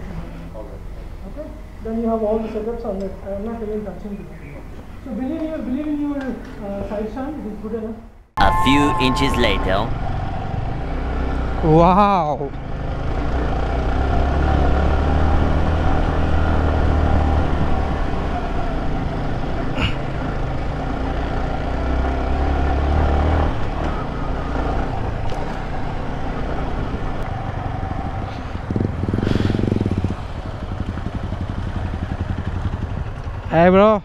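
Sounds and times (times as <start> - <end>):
motorcycle engines running: 10.0 - 34.0.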